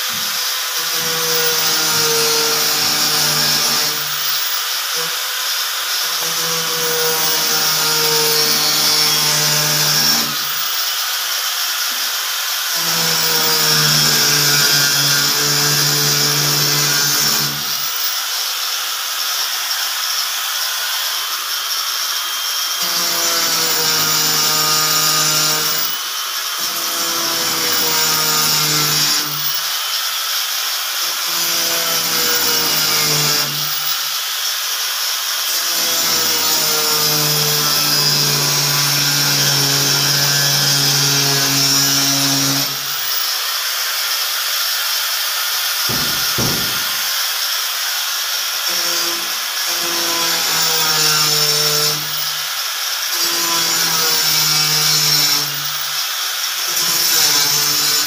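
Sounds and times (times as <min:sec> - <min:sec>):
power tool grinding hiss: 0:00.0 - 0:58.0
short knock: 0:45.9 - 0:47.1.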